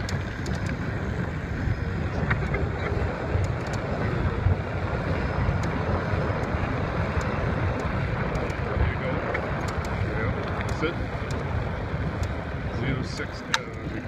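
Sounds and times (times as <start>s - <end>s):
tyres rumbling on road: 0.0s - 14.0s
wind rushing over microphone: 0.0s - 14.0s.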